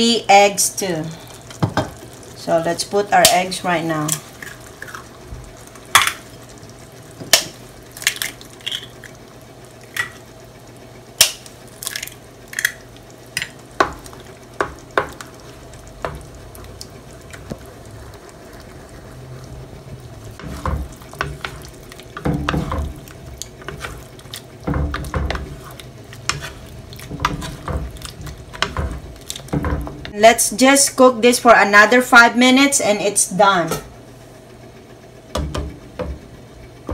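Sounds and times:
food frying: 0:00.0 - 0:31.0
stirring and scraping in pan: 0:13.4 - 0:30.1.

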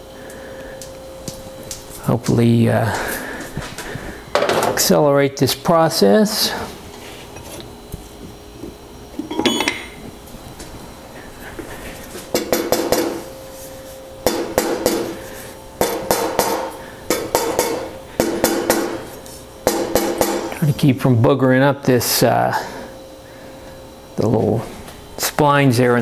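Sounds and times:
hammer striking steel tool: 0:09.2 - 0:10.0.

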